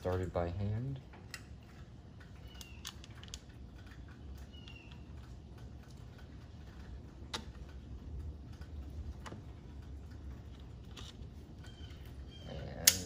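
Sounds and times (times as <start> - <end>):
steady low hum: 0.0 - 13.0
plastic parts clicking and tapping: 2.2 - 7.8.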